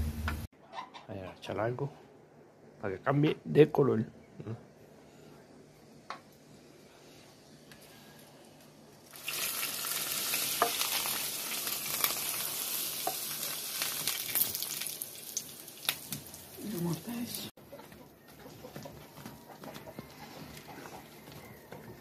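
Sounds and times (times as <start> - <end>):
hot oil sizzling and crackling: 7.4 - 17.5.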